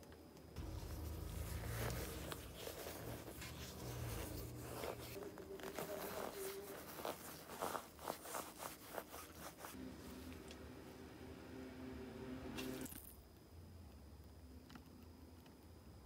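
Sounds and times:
fibrous rustling and tearing: 0.6s - 9.8s.

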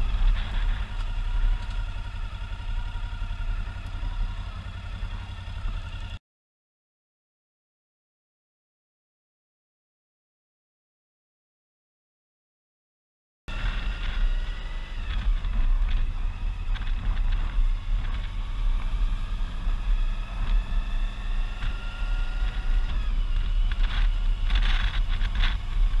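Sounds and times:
motorcycle engine: 0.0s - 6.2s, 13.5s - 26.0s
wind and road noise: 0.0s - 6.2s, 13.5s - 26.0s.

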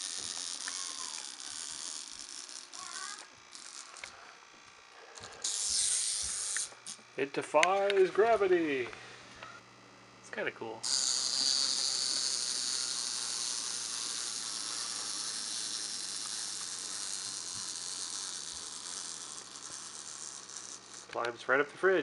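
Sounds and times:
wind-up toy motor whirring: 0.0s - 4.3s, 4.9s - 7.1s, 10.8s - 21.3s.

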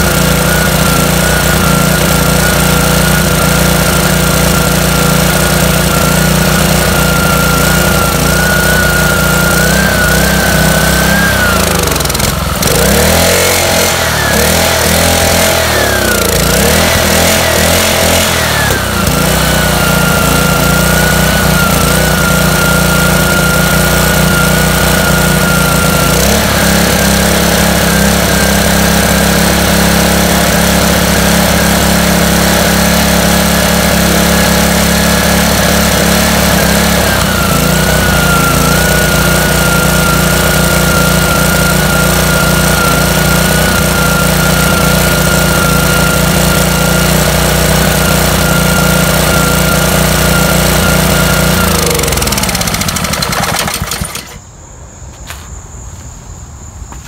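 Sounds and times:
small engine running: 0.0s - 54.5s.

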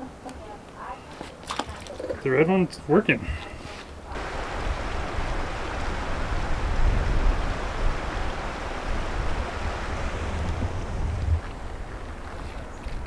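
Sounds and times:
wind buffeting microphone: 4.1s - 13.0s.

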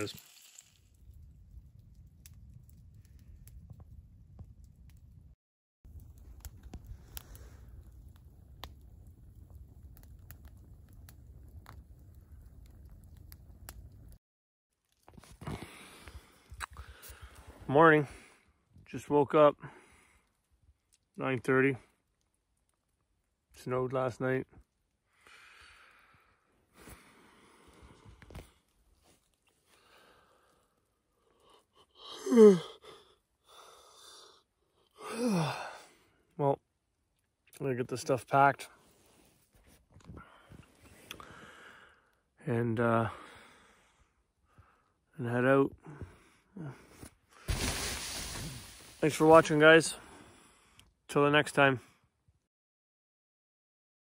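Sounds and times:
man yawning: 32.0s - 32.9s, 35.0s - 35.8s
breath drawn in: 47.4s - 49.0s.

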